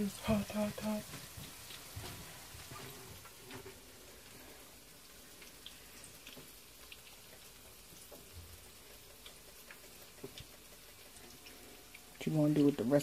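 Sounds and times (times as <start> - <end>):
food frying in hot oil: 0.0 - 13.0
small oil pops: 5.4 - 11.6.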